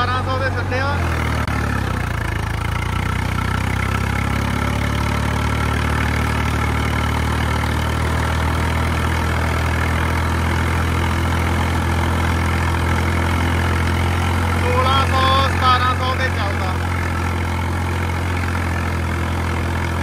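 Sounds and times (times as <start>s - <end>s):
diesel tractor engine running: 0.0s - 20.0s.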